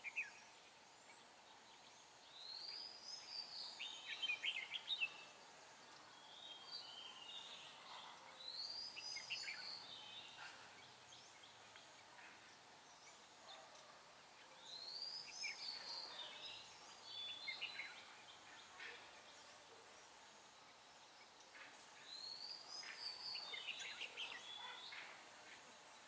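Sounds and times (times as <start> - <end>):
bird singing whistled notes: 0.0 - 0.5, 8.4 - 10.4
background hiss: 0.0 - 26.0.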